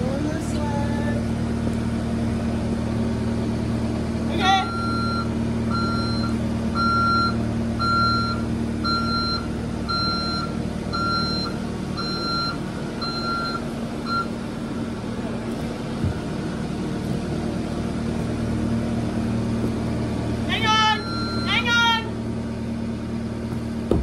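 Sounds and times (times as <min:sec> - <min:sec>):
skid steer engine running: 0:00.0 - 0:24.0
reversing alarm beeping: 0:04.6 - 0:14.4, 0:20.8 - 0:21.8.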